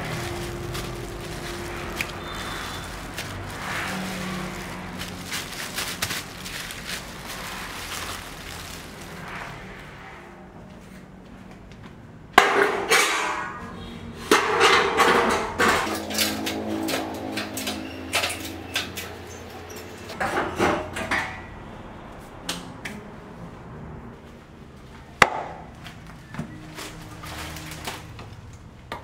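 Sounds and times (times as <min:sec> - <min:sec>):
metal crashes: 0:12.4 - 0:21.5
sheet metal clattering: 0:12.4 - 0:21.5.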